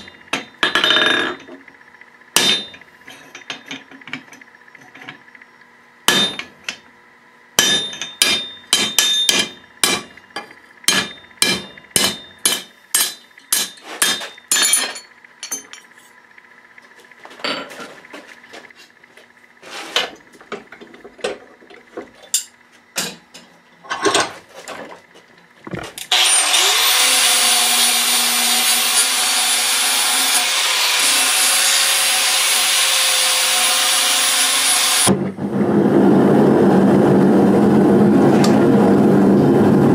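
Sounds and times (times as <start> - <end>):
hammer striking hot steel: 2.4 - 3.8, 6.1 - 6.8, 7.6 - 15.7
angle grinder grinding steel: 26.1 - 35.1.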